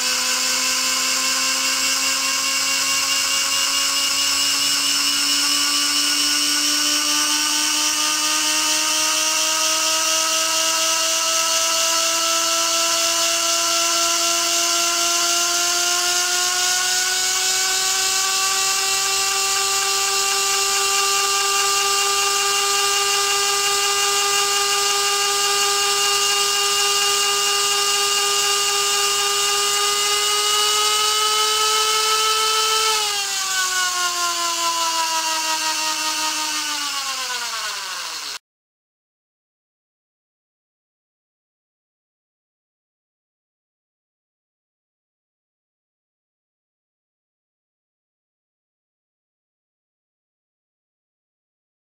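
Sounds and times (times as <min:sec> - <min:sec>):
turbine high whine: 0:00.0 - 0:38.4.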